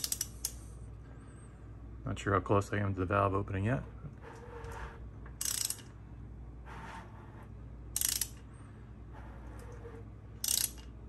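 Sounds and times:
hand ratchet clicking: 0:00.0 - 0:00.6, 0:05.4 - 0:05.9, 0:08.0 - 0:08.4, 0:10.4 - 0:10.9
ratchet rasping: 0:00.0 - 0:00.6, 0:05.4 - 0:05.9, 0:08.0 - 0:08.4, 0:10.4 - 0:10.9.

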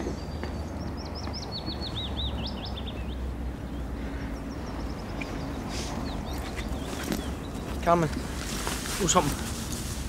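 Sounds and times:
small bird chirping: 0:00.0 - 0:08.0.

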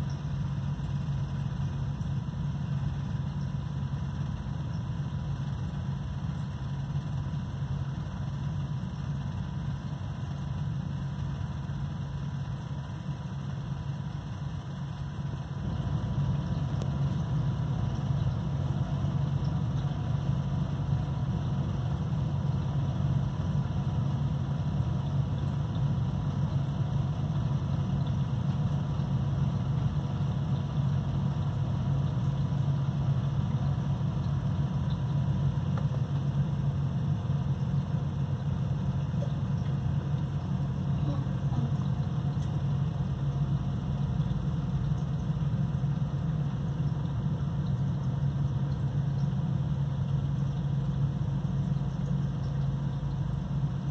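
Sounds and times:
low mechanical hum: 0:00.0 - 0:53.9.

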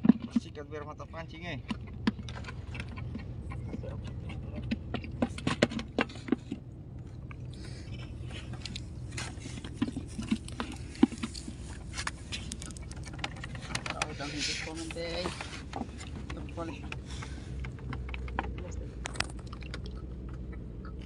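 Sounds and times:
steady low hum: 0:00.0 - 0:21.0
small clicks and knocks: 0:08.6 - 0:20.6.

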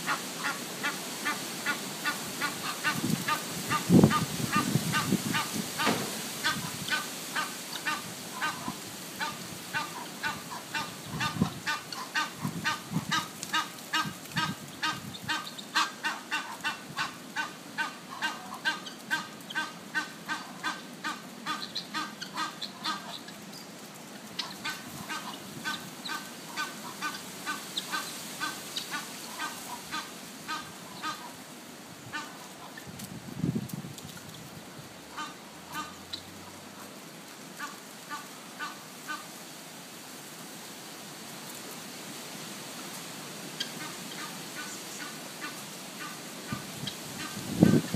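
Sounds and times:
geese honking: 0:00.0 - 0:23.4, 0:24.3 - 0:31.4, 0:32.1 - 0:32.8, 0:35.1 - 0:36.2, 0:37.6 - 0:39.3, 0:43.6 - 0:47.9.

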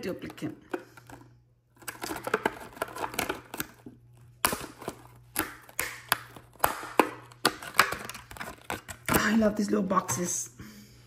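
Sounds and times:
plastic box crackling and clicking: 0:01.8 - 0:09.3.

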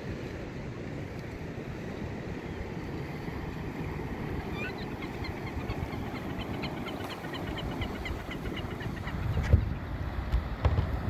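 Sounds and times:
wind on microphone: 0:00.0 - 0:11.0.

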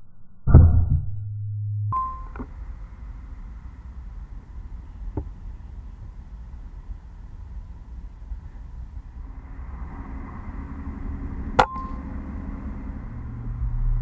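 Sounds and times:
low hum: 0:00.0 - 0:14.0
outdoor background noise: 0:00.0 - 0:14.0
deep thump: 0:00.5 - 0:02.0.

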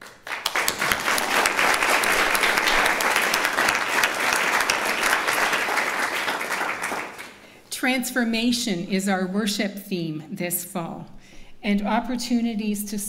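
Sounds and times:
congregation applauding: 0:00.0 - 0:07.5.

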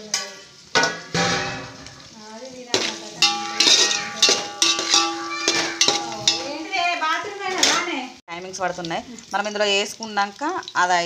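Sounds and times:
vegetables frying: 0:00.0 - 0:11.0
metal spoon clanking on pot: 0:02.7 - 0:06.8
pot ringing: 0:02.8 - 0:06.9.

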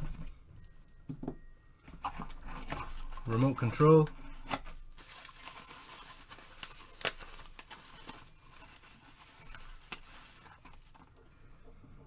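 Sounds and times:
plastic packaging crinkling: 0:02.0 - 0:11.3.

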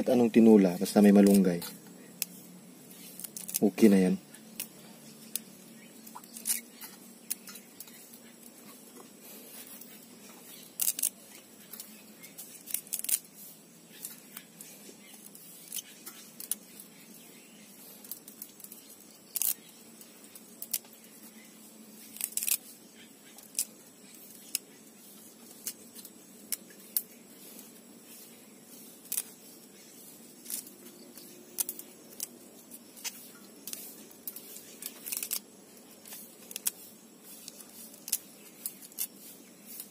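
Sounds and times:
leaf stalks snapping: 0:01.2 - 0:01.5, 0:02.2 - 0:08.5, 0:10.5 - 0:13.3, 0:13.9 - 0:16.8, 0:18.0 - 0:19.7, 0:20.3 - 0:21.4, 0:22.0 - 0:22.7, 0:29.0 - 0:29.8, 0:30.4 - 0:36.8.

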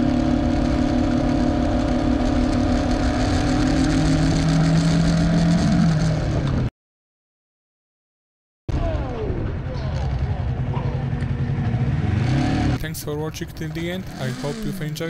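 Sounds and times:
motorcycle engine running: 0:00.0 - 0:06.7, 0:09.9 - 0:15.0.

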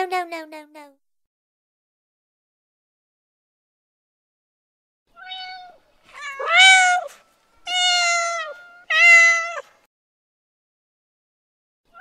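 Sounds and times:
kitten meowing: 0:05.2 - 0:09.7.

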